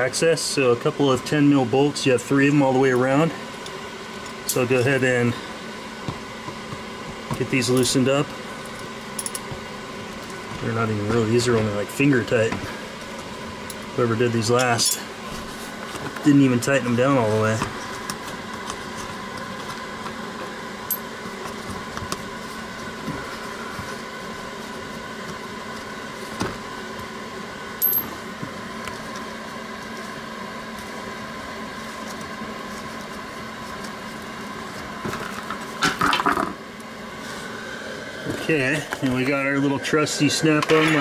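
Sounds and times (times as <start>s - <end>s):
electric heater humming: 0.0s - 41.0s.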